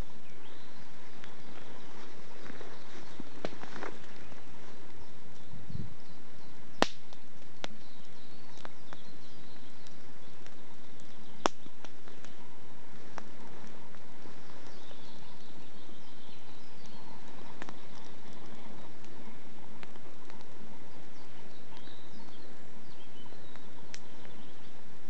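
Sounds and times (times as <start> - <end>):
campfire crackling and popping: 0.0 - 25.0.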